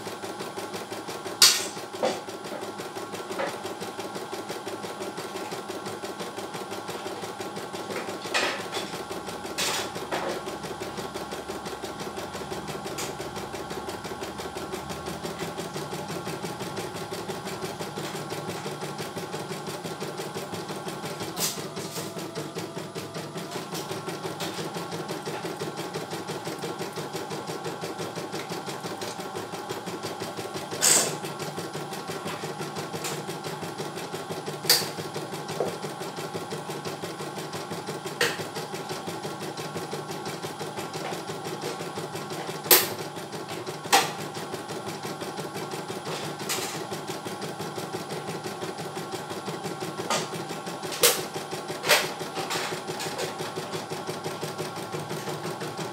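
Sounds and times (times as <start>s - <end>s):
embroidery machine needle running: 0.0s - 55.9s.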